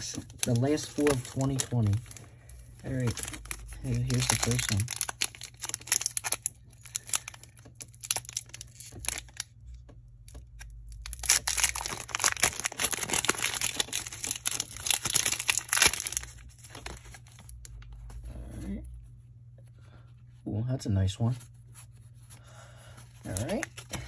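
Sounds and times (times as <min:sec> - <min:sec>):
foil wrapper crinkling and tearing: 0:00.0 - 0:09.5, 0:10.3 - 0:18.2, 0:23.0 - 0:24.0.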